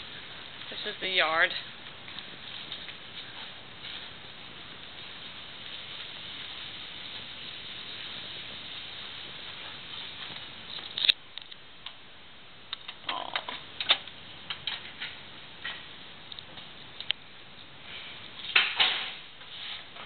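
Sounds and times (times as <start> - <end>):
steady outdoor hiss: 0.0 - 20.0
footsteps and handling indoors: 1.8 - 7.3, 17.6 - 20.0.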